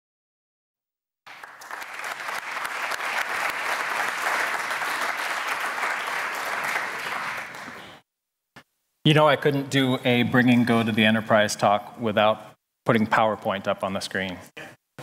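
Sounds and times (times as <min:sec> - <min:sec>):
audience applauding: 0:01.3 - 0:08.0.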